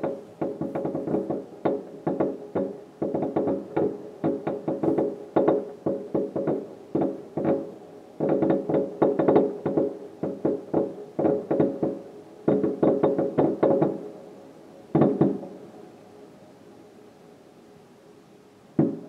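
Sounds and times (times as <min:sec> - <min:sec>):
fireworks bangs heard indoors: 0:14.9 - 0:15.5, 0:18.8 - 0:19.0.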